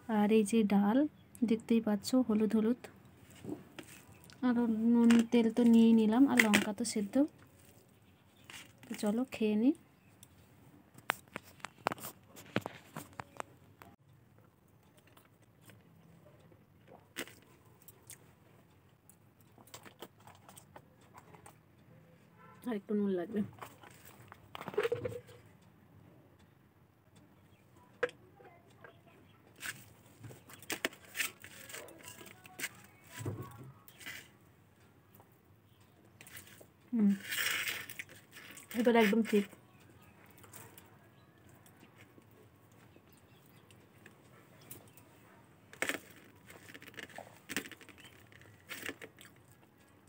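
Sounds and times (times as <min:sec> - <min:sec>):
person eating by hand: 0:45.7 - 0:50.0.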